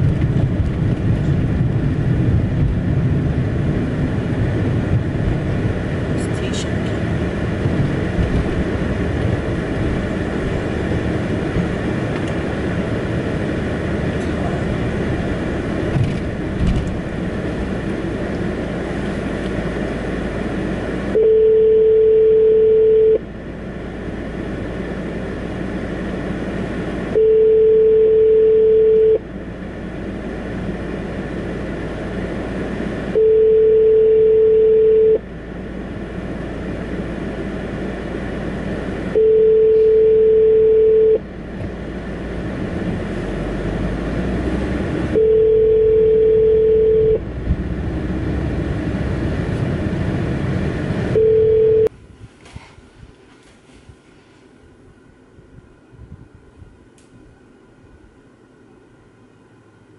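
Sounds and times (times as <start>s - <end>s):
car cabin rumble: 0.0s - 23.5s, 38.4s - 53.2s
phone ringback tone: 21.2s - 23.2s, 27.2s - 29.2s, 33.2s - 35.2s, 39.2s - 41.2s, 45.2s - 47.2s, 51.2s - 51.9s.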